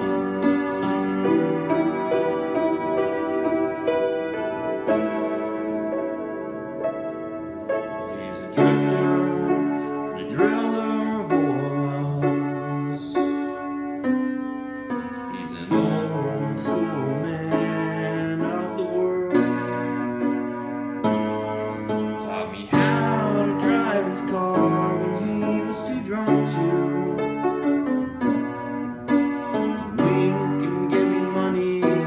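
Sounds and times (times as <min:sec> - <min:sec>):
piano chords: 0:00.0 - 0:32.0
man singing: 0:01.2 - 0:02.6, 0:08.1 - 0:13.8, 0:15.1 - 0:20.3, 0:22.2 - 0:27.9, 0:29.6 - 0:32.0.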